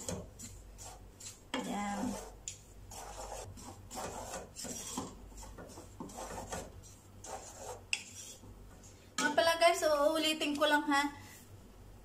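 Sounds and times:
wooden spatula scraping in pot: 0.0 - 9.0.

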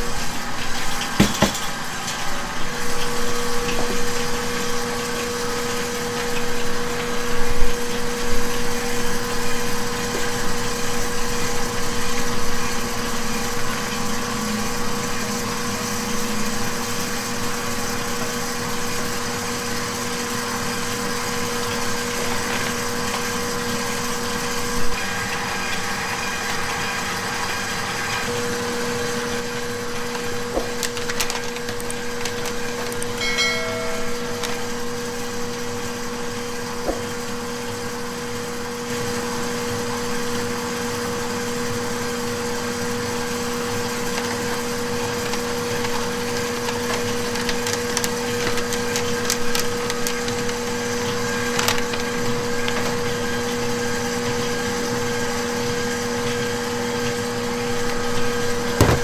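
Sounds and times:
kitchen machinery humming: 0.0 - 59.0
utensils knocking and clinking: 1.2 - 1.7, 30.0 - 35.3, 58.8 - 59.0.

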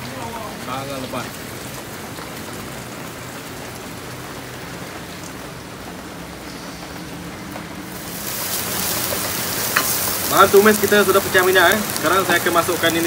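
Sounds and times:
heavy rain pouring: 0.0 - 13.0
spice paste frying in oil: 7.9 - 13.0.

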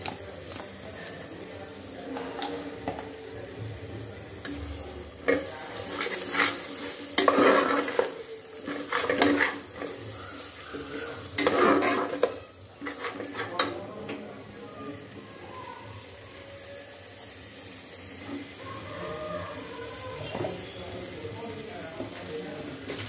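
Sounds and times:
masala sizzling: 0.0 - 23.0
spoon scraping pressure cooker: 5.2 - 10.1, 11.3 - 13.7.

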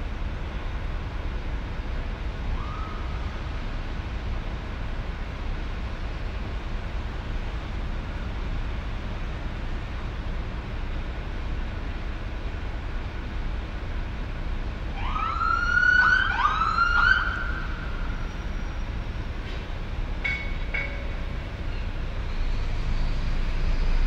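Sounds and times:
city traffic rumble: 0.0 - 24.0
siren whooping: 15.0 - 18.1.

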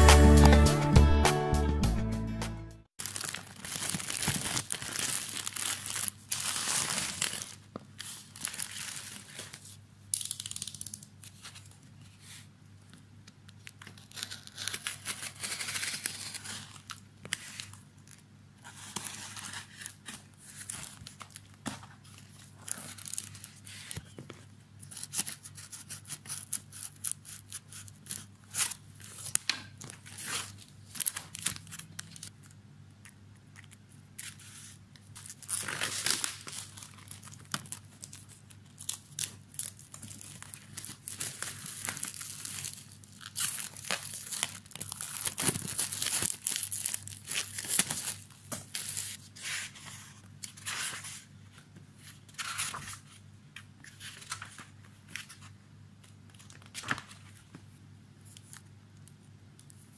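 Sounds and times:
cardboard package tearing: 3.0 - 9.5, 14.0 - 17.7, 35.2 - 49.2
paper rustling and crinkling: 3.0 - 9.8, 13.6 - 27.2, 27.8 - 58.6
faint steady hum: 3.0 - 59.9.

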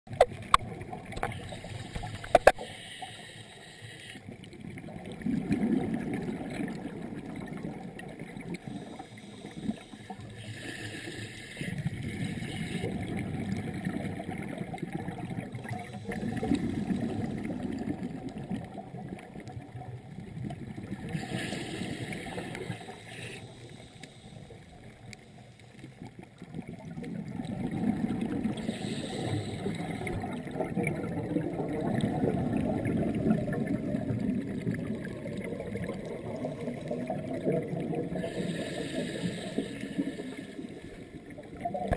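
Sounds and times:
regulator inhale hiss: 1.2 - 4.4, 8.5 - 13.1, 15.8 - 16.9, 21.1 - 25.9, 28.5 - 30.3, 38.1 - 41.1
exhaled bubbles rumbling: 4.3 - 10.4, 11.6 - 23.0, 25.8 - 41.9.

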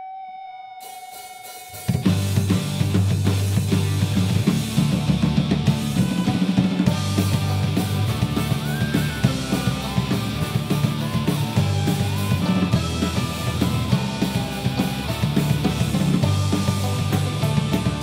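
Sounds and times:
electric guitar: 0.0 - 18.0
driving drum-kit beat: 0.8 - 18.0
bass guitar: 1.8 - 18.0
fiddle sliding melody: 2.0 - 18.0.

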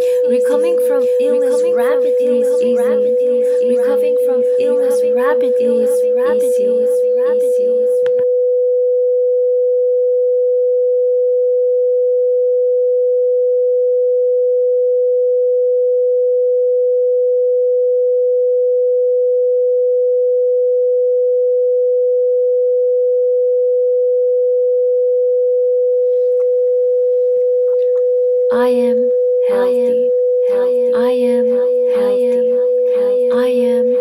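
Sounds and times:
steady pure tone: 0.0 - 8.2, 26.0 - 34.0.

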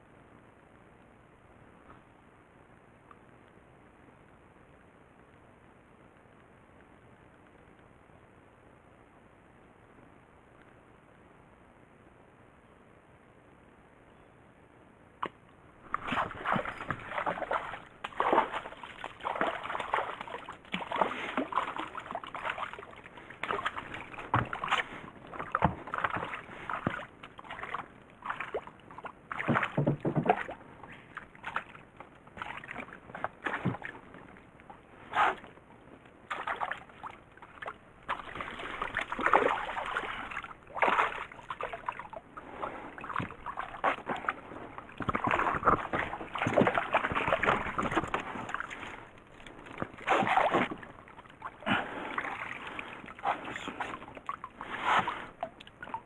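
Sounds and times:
water splashing and sloshing: 15.2 - 56.0.

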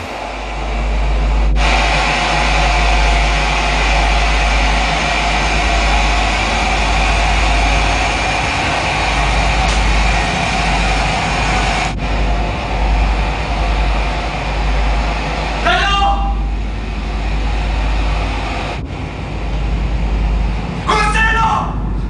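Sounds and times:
low rumbling drone: 0.0 - 22.0.

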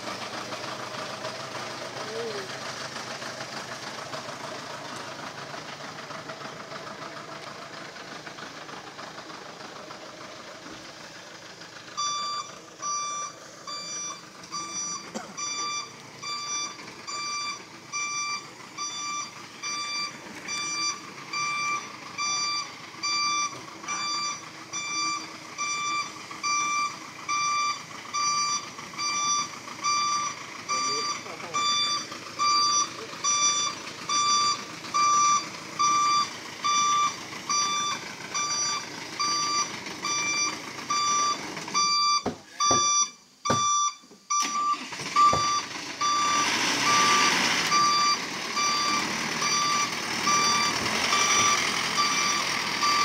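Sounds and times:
engine running: 0.0 - 53.0
truck reversing alarm beeping: 0.0 - 53.0.

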